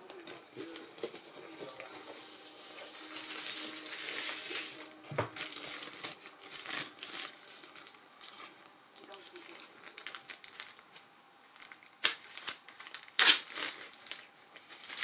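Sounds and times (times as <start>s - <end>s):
packaging wrapper crinkling: 0.2s - 15.0s.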